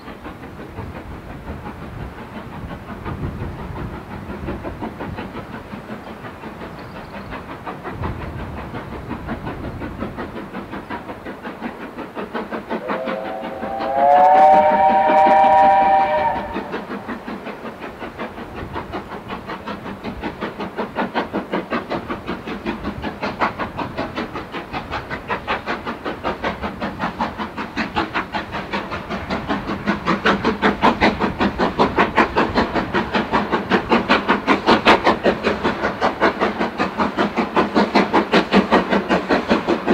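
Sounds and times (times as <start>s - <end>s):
steam locomotive exhaust beats: 0.0s - 39.9s
steam locomotive whistle: 12.8s - 16.9s.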